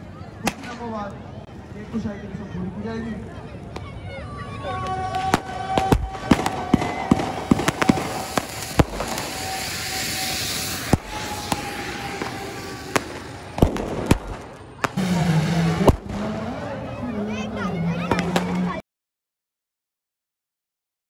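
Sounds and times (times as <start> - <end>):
fountain fireworks hissing: 4.5 - 18.7
firecrackers banging: 4.8 - 18.8.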